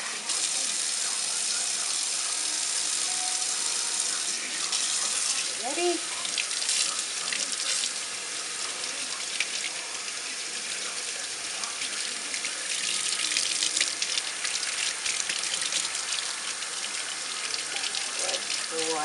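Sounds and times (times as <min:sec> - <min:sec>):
faucet water splashing into sink: 0:04.0 - 0:19.0.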